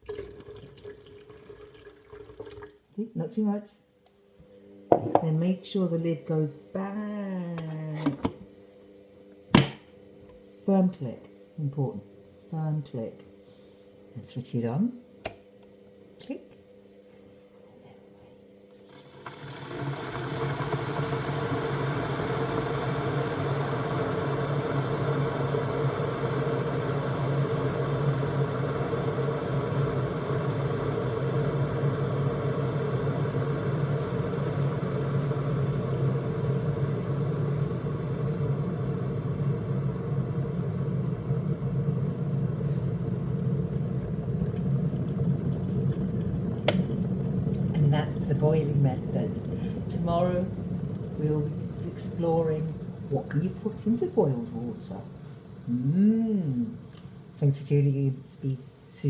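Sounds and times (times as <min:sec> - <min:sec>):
kettle rumbling hiss: 0:00.0 - 0:03.6, 0:04.4 - 0:08.6, 0:16.6 - 0:59.0
kettle switch click: 0:09.5 - 0:09.8, 0:46.7 - 0:46.9.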